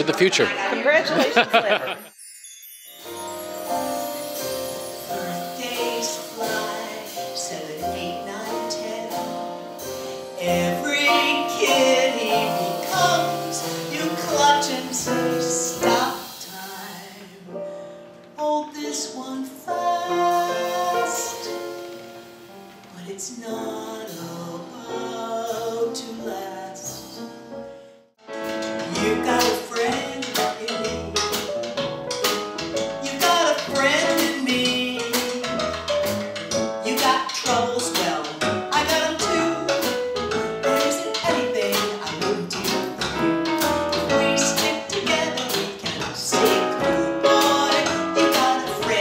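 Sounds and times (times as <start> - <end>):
instrumental accompaniment: 1.2 - 18.4, 19.7 - 49.0
woman singing into a microphone: 5.1 - 9.4, 10.4 - 17.6, 18.4 - 21.6, 22.9 - 26.9, 28.9 - 31.2, 33.0 - 35.2, 36.8 - 40.0, 40.7 - 43.0, 44.1 - 49.0.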